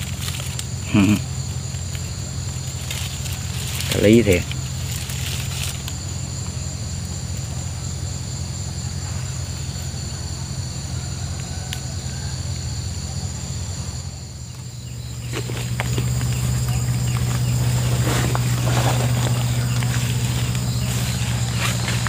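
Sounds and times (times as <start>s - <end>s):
insects chirring: 0.0s - 22.0s
low engine hum: 0.0s - 22.0s
brief rustles: 16.7s - 22.0s.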